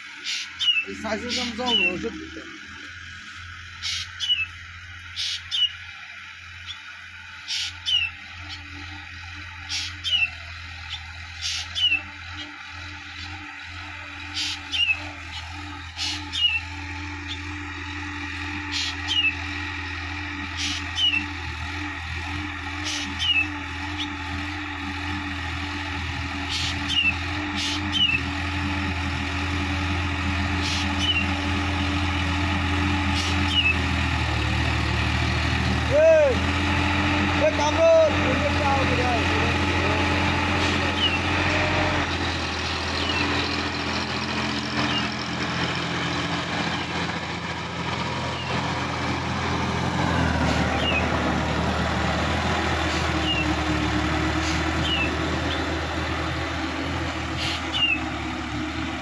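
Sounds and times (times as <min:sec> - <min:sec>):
tractor diesel engine running: 0:00.0 - 0:59.0
bird calls with falling whistle: 0:00.2 - 0:02.0, 0:03.8 - 0:05.9, 0:07.5 - 0:08.7, 0:09.7 - 0:12.5, 0:14.3 - 0:17.4, 0:18.7 - 0:19.5, 0:20.6 - 0:21.4, 0:22.8 - 0:24.2, 0:26.5 - 0:28.2, 0:30.6 - 0:31.4, 0:33.2 - 0:34.0, 0:40.9 - 0:41.3, 0:44.8 - 0:45.2, 0:50.5 - 0:51.2, 0:53.1 - 0:53.6, 0:54.4 - 0:55.7, 0:57.4 - 0:58.1.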